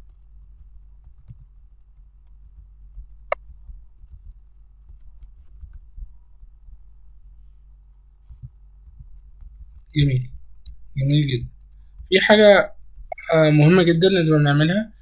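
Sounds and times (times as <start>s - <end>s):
steady low hum: 0.0s - 15.0s
keyboard key clicks: 1.0s - 5.9s.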